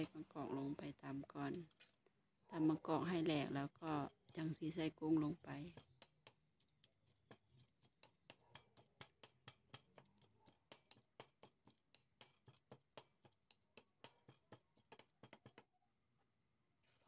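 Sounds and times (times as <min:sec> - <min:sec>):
stone pestle pounding in mortar: 0:02.6 - 0:15.7.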